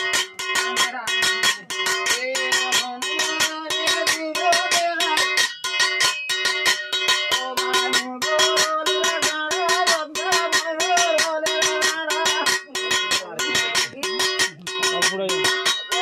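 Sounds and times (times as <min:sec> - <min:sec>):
plucked string instrument music: 0:07.1 - 0:16.0.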